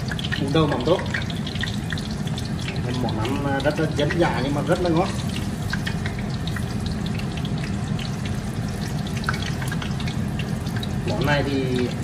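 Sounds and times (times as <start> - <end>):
oil sizzling and popping: 0.0 - 12.0.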